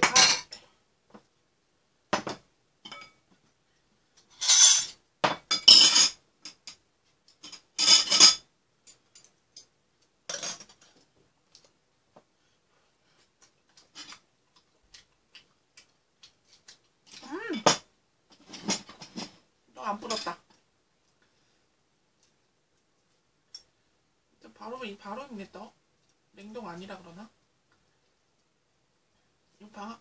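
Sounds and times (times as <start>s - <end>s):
utensils clinking against pots and bowls: 4.2s - 6.8s, 7.4s - 9.7s.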